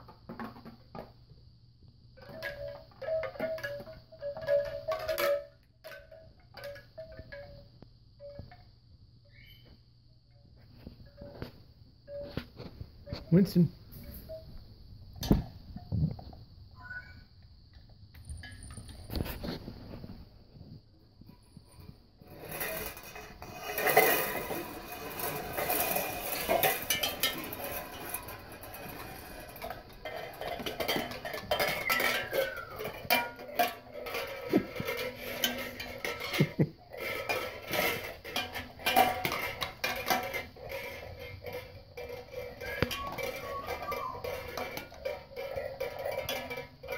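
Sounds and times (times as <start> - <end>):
plastic cups and tin cans clinking: 0.0 - 1.3, 2.2 - 8.6, 21.6 - 46.9.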